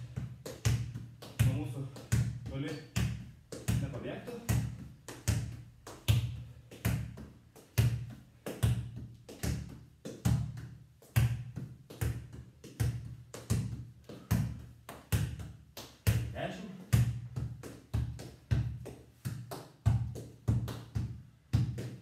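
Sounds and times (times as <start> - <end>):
foot thumping football: 0.0 - 22.0.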